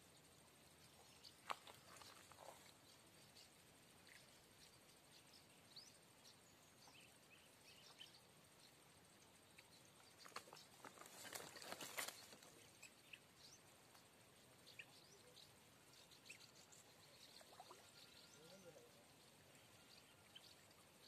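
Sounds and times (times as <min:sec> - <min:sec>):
faint bird chirps: 0:00.0 - 0:21.0.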